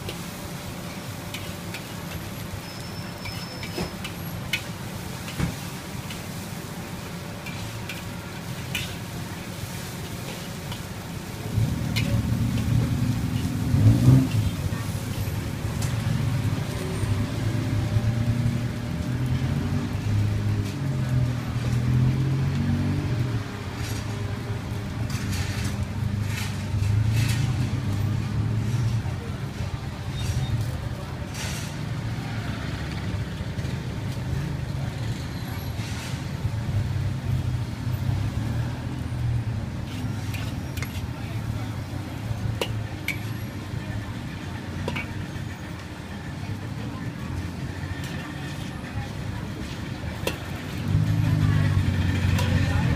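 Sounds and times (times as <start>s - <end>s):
rice sizzling in a wok: 0.0s - 52.9s
vehicle engine humming: 0.0s - 52.9s
metal spatula scraping wok: 0.1s - 18.3s, 23.8s - 29.0s, 30.1s - 32.0s, 39.6s - 52.9s.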